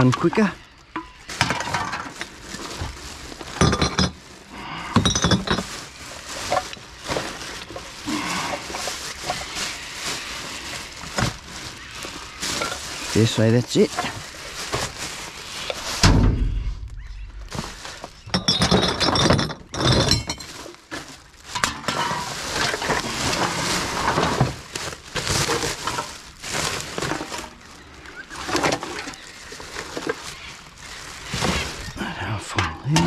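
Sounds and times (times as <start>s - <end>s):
glass bottles and rubbish clinking: 0.0s - 10.1s, 10.8s - 15.3s, 17.5s - 30.4s, 31.0s - 33.0s
heavy thump: 16.0s - 17.8s.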